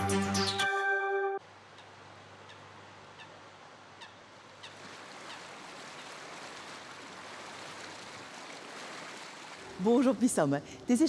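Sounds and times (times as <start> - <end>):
water washing: 4.6 - 10.6.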